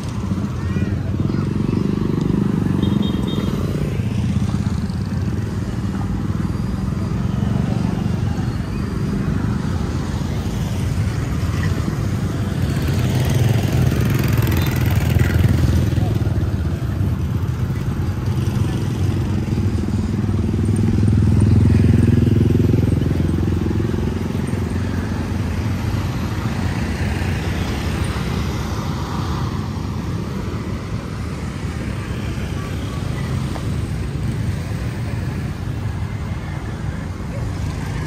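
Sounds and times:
traffic rumble: 0:00.0 - 0:38.0.

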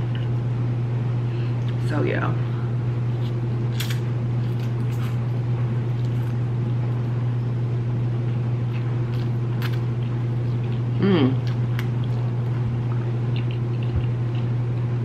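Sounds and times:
steady low hum: 0:00.0 - 0:15.0
mouth sounds eating noodles: 0:10.5 - 0:12.2.

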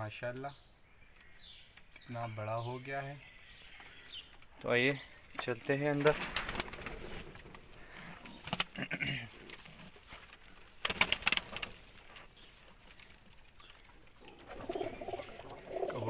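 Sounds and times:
pigeons cooing: 0:06.2 - 0:10.0, 0:14.0 - 0:16.0.

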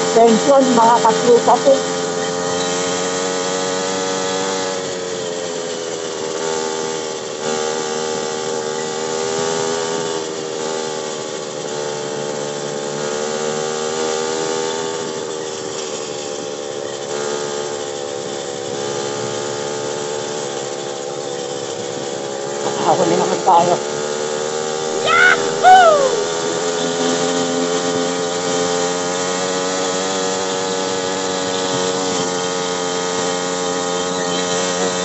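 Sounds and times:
motorcycle engine cruising: 0:00.0 - 0:07.0.

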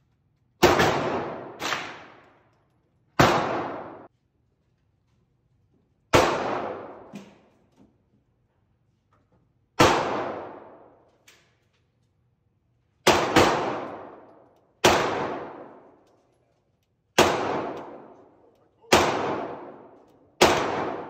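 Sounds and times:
pistol shots with echo: 0:00.6 - 0:02.3, 0:03.2 - 0:04.1, 0:06.1 - 0:07.1, 0:09.8 - 0:11.0, 0:13.0 - 0:16.0, 0:17.2 - 0:21.0.

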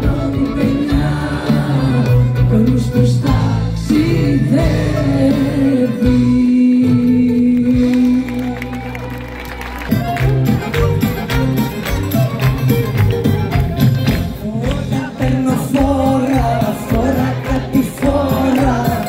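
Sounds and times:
woman singing into a microphone: 0:00.0 - 0:08.5
live band music: 0:00.0 - 0:19.0.

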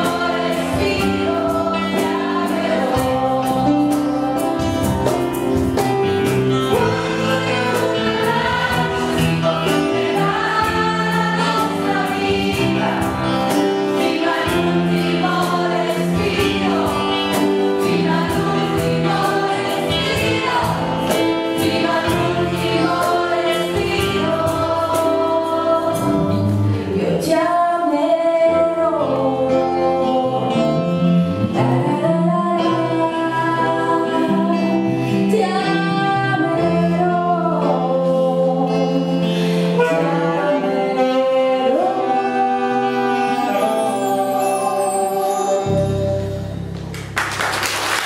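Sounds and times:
woman singing: 0:00.0 - 0:05.2, 0:06.7 - 0:26.2, 0:26.8 - 0:30.9, 0:31.6 - 0:45.6
keyboard: 0:00.0 - 0:48.0
saxophone: 0:28.4 - 0:46.8.

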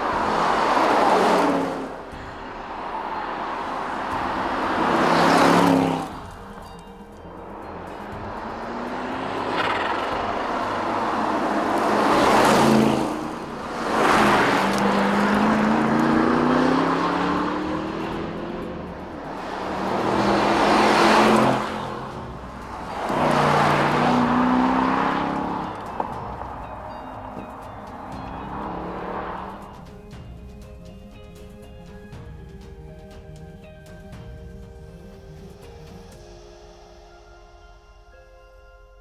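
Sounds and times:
car engine accelerating past: 0:00.0 - 0:06.4, 0:07.7 - 0:27.4, 0:28.0 - 0:29.8.

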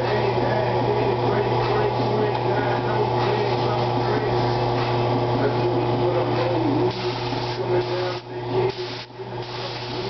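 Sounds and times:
steady low hum: 0:00.0 - 0:10.0
paint spray gun hissing: 0:06.9 - 0:10.0.

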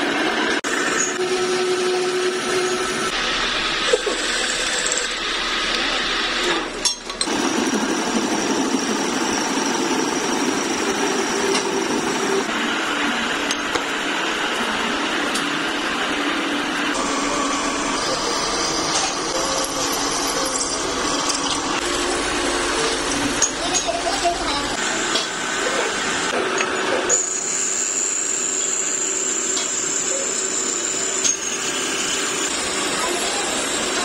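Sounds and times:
milling machine cutting steel: 0:00.1 - 0:34.0.

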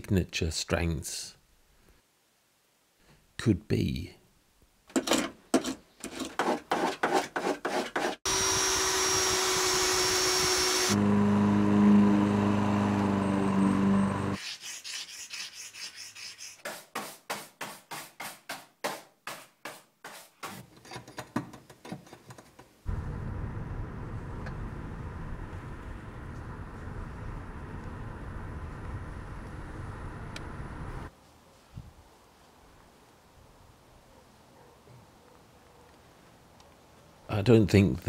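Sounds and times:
power tool whining: 0:08.2 - 0:14.4
low motor hum: 0:10.4 - 0:14.4, 0:22.9 - 0:31.1
steady low rumble: 0:22.9 - 0:31.1.

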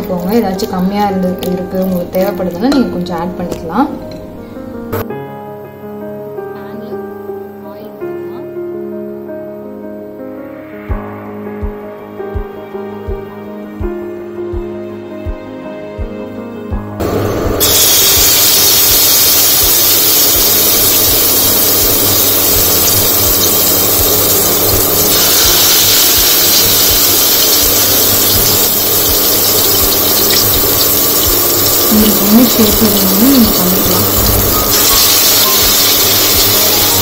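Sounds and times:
hash browns sizzling in hot oil: 0:00.0 - 0:03.8, 0:17.0 - 0:37.0.

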